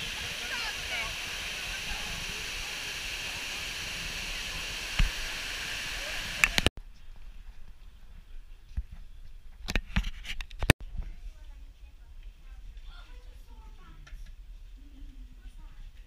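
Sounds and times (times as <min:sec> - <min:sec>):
waterfall rushing: 0:00.0 - 0:06.7.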